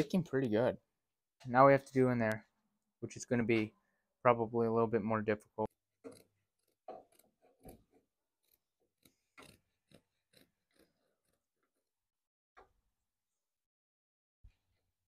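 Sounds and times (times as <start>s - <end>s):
scissors snipping carpet: 6.0s - 11.9s.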